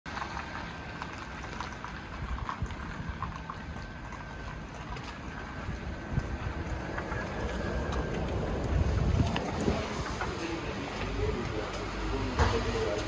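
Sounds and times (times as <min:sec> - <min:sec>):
wind buffeting microphone: 0:01.5 - 0:11.5.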